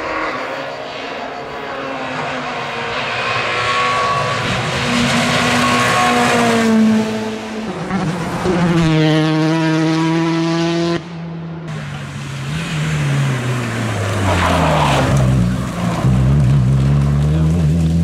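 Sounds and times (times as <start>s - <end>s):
car engine slowing and accelerating: 0.0s - 18.0s
rally car engine revving high: 0.0s - 18.0s
tyre and gravel noise: 11.7s - 18.0s.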